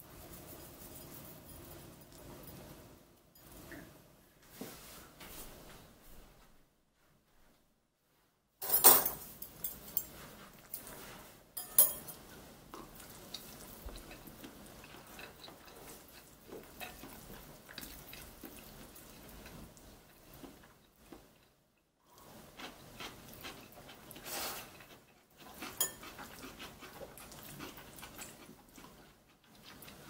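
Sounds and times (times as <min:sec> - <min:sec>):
metal chopsticks clattering on bowl: 0:11.6 - 0:12.1.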